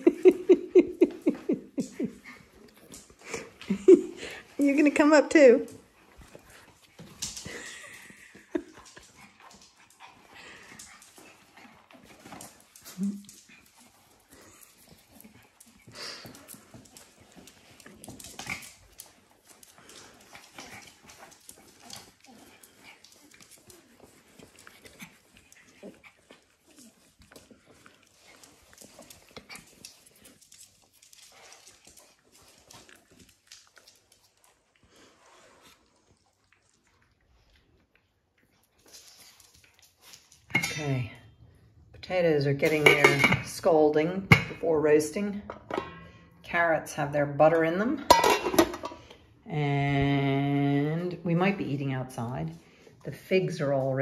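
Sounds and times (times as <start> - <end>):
dogs scuffling: 0.0 - 36.8
paws clicking on floor: 0.0 - 40.7
small dogs whimpering: 20.0 - 30.4.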